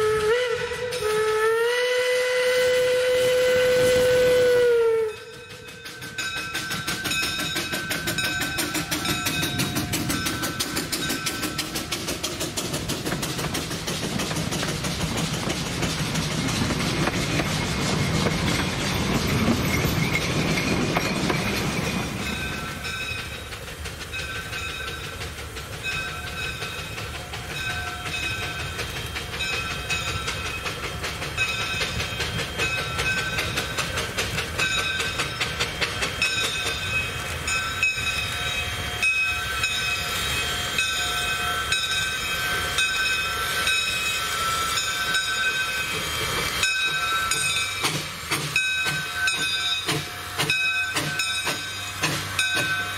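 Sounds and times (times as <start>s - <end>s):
train wheels clicking over rail joints: 0.0s - 52.9s.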